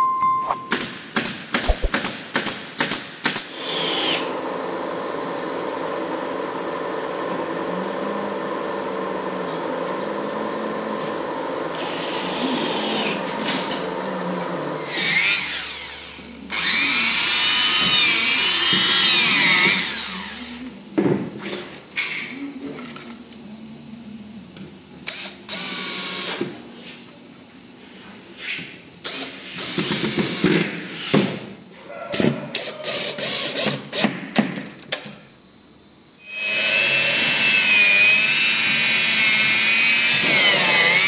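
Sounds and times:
steady mechanical hum: 0.0 - 41.0
pneumatic stapler shots: 0.7 - 4.2, 32.2 - 35.1
cordless drill whirring: 14.9 - 20.5, 36.4 - 41.0.

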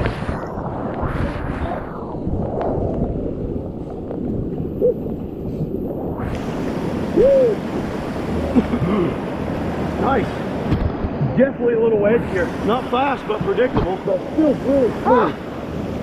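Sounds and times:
wind on microphone: 0.0 - 16.0
rushing whitewater: 6.2 - 16.0
hoot-like tones: 7.2 - 7.6.

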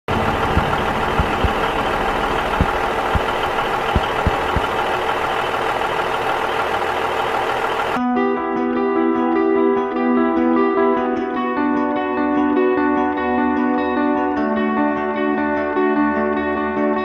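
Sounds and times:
guitar music: 0.1 - 6.4, 8.0 - 17.0
film projector whirring: 0.1 - 8.0.

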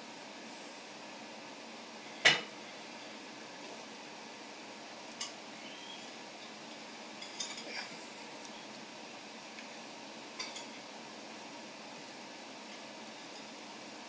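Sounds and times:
steady hiss: 0.0 - 14.0.

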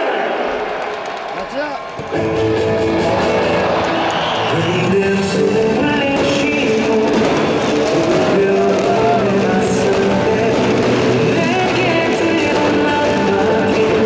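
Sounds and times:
rock pop music with singing: 2.1 - 14.0.

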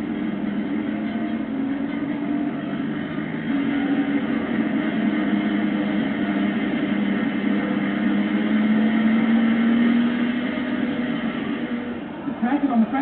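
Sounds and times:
car engine droning at speed: 0.0 - 13.0.

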